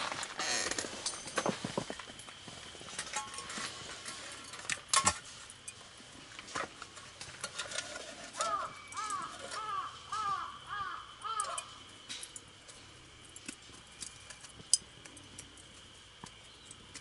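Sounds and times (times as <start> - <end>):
crow cawing: 8.4 - 11.8.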